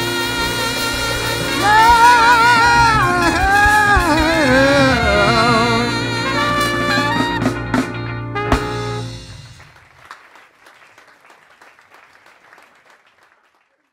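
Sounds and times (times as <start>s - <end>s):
live band holding final chord: 0.0s - 10.1s
faint scattered clapping: 9.6s - 13.9s.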